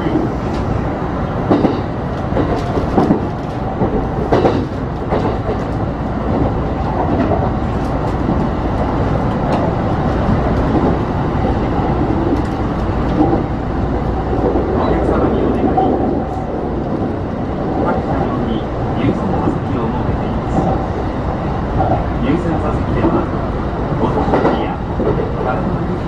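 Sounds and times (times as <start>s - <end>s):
train wheels rumbling on rail: 0.0s - 26.0s
sharp rail clacks: 1.5s - 11.0s.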